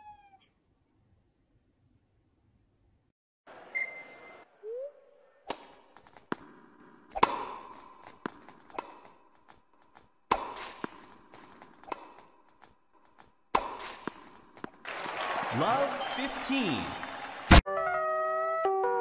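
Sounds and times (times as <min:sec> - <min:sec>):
racket striking tennis ball: 0:05.5 - 0:09.3, 0:10.2 - 0:12.4, 0:13.2 - 0:14.8
ball bouncing: 0:05.5 - 0:14.8.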